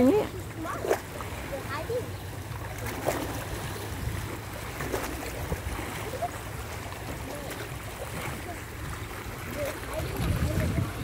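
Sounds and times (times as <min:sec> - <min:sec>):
small waves washing on rocks: 0:00.0 - 0:11.0
wind rumble on microphone: 0:09.8 - 0:11.0.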